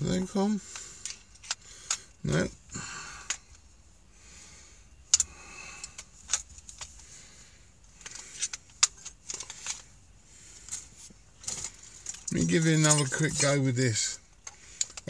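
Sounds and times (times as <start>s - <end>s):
tools rattling: 7.9s - 15.0s.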